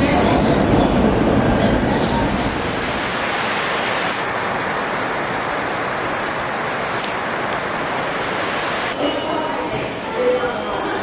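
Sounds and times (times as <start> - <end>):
railway station ambience: 0.0 - 11.0.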